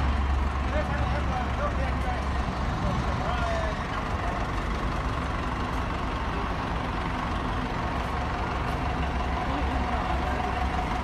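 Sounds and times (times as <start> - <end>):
road roller diesel engine: 0.0 - 11.0.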